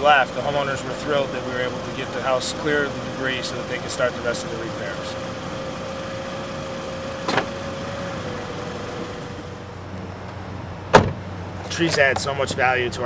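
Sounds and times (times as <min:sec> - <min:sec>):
car cabin hum: 0:00.0 - 0:12.7
car door latch click: 0:07.2 - 0:07.6, 0:10.9 - 0:11.2.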